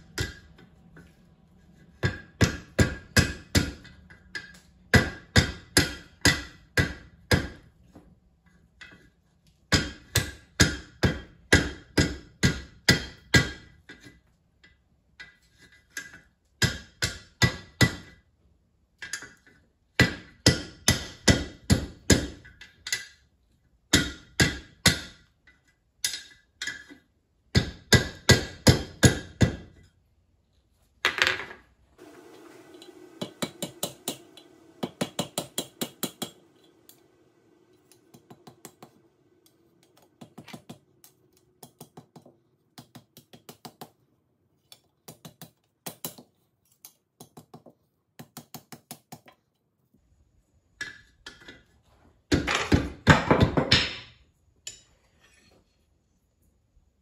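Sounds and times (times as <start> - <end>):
hammer striking hot steel: 0.0 - 0.5, 2.0 - 7.7, 32.2 - 40.8.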